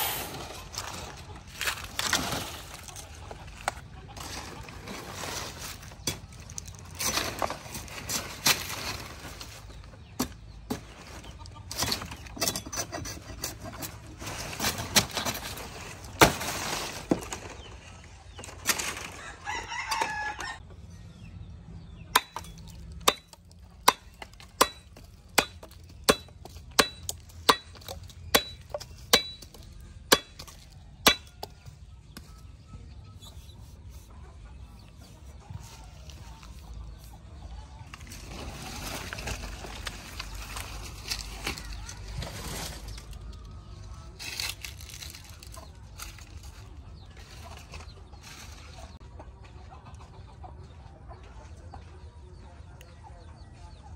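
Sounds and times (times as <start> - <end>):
leaves rustling: 0.0 - 9.8, 14.2 - 19.6, 37.9 - 48.8
rooster crowing: 19.2 - 20.6.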